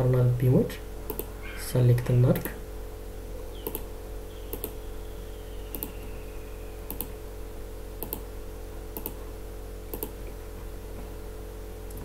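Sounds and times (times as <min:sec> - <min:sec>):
low electrical hum: 0:00.0 - 0:12.0
computer mouse clicking: 0:01.1 - 0:01.3, 0:03.6 - 0:03.8, 0:04.5 - 0:04.8, 0:05.7 - 0:05.9, 0:06.9 - 0:07.1, 0:08.0 - 0:08.3, 0:09.0 - 0:09.2, 0:09.9 - 0:10.2.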